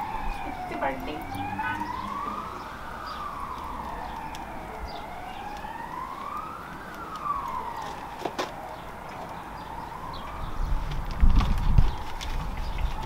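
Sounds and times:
emergency siren wailing: 0:00.0 - 0:13.0.

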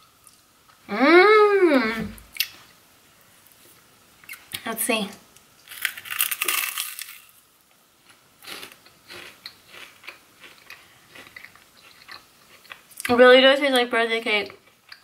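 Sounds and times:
crunchy bite of rice cake: 0:05.7 - 0:07.3
crunchy chewing: 0:08.0 - 0:13.1.

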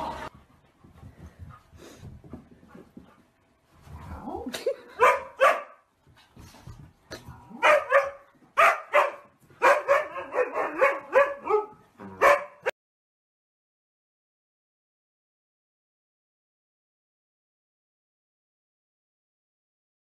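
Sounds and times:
dog barking: 0:05.0 - 0:05.8, 0:07.6 - 0:12.8.

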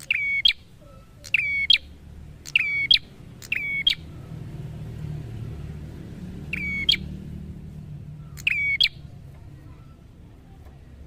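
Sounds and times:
bird call: 0:00.0 - 0:04.1, 0:06.5 - 0:07.1, 0:08.3 - 0:09.0.

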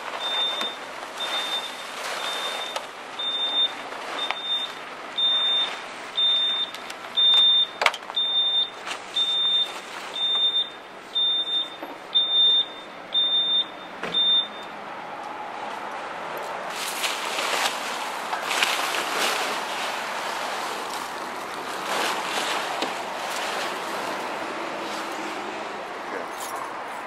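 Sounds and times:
tarp rustling: 0:00.0 - 0:10.9, 0:16.5 - 0:25.8
reversing alarm beeping: 0:00.1 - 0:14.8.

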